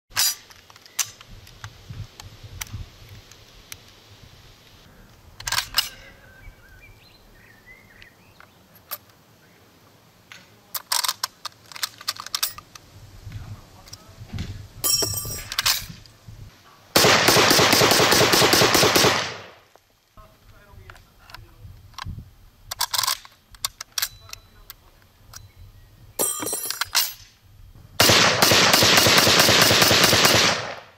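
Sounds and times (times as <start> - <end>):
rifle metal clicks and clacks: 5.4 - 6.0, 10.3 - 12.8, 14.9 - 16.0, 22.7 - 25.5
rapid gunfire rattle: 17.0 - 19.6, 28.0 - 30.9.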